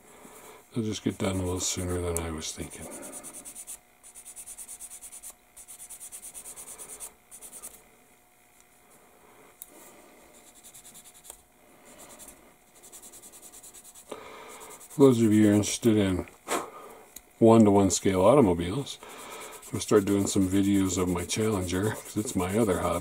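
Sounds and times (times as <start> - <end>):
sanding stick rasping on plastic: 2.7 - 7.7, 10.4 - 11.3, 12.0 - 15.8, 19.1 - 23.0.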